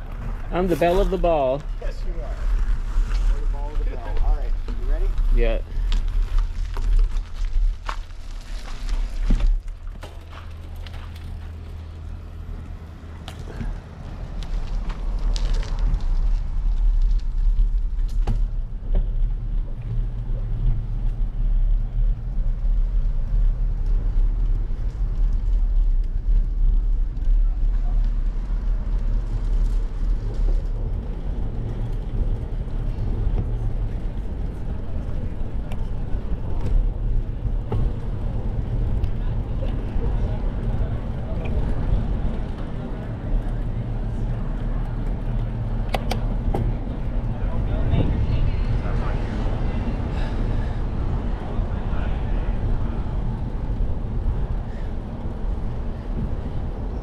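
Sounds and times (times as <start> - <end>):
wind rumbling on microphone: 0.0 - 57.0.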